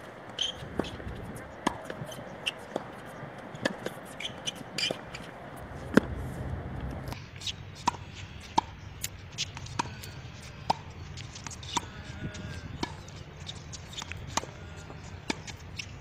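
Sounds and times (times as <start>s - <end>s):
low background rumble: 5.3s - 7.2s.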